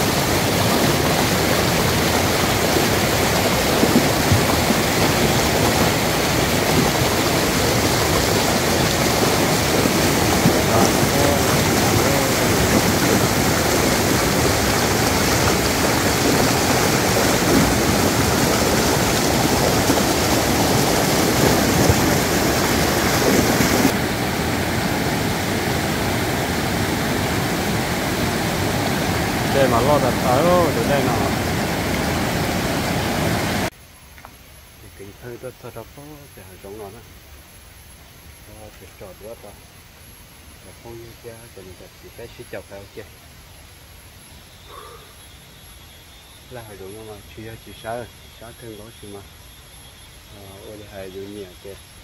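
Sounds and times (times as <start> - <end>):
stream rushing over rocks: 0.0 - 33.7.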